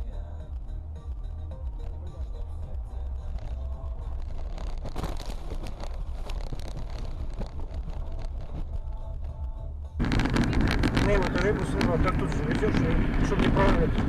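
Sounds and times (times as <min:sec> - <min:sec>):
low car rumble: 0:00.0 - 0:14.0
wind buffeting microphone: 0:04.2 - 0:14.0.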